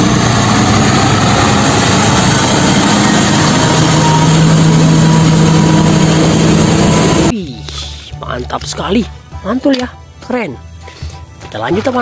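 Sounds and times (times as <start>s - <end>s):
traffic noise rushing: 0.0s - 7.4s
truck diesel engine passing: 0.0s - 7.4s
low engine hum: 0.0s - 8.2s.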